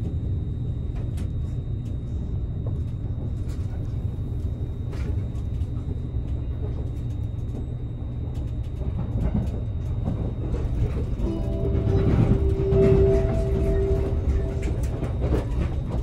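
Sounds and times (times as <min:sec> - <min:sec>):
train wheels rumbling on rail: 0:00.0 - 0:16.0
two-tone onboard chime: 0:11.2 - 0:15.3.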